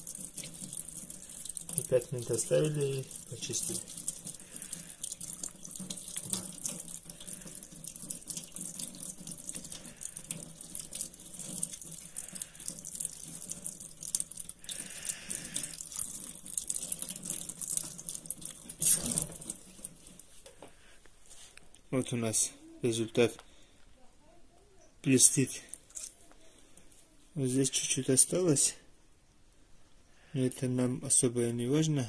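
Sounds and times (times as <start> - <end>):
tap water running into sink: 0.0 - 20.3.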